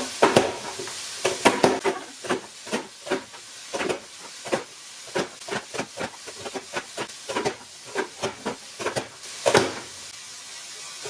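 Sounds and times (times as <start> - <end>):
vegetables sizzling in a frying pan: 0.0 - 11.0
plastic vegetable chopper knocking: 3.8 - 9.8.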